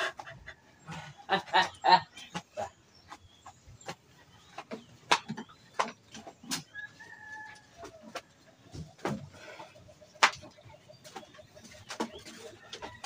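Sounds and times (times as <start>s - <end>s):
chickens clucking: 0.0s - 13.0s
bamboo hut knocking and creaking: 1.5s - 6.8s, 7.6s - 13.0s.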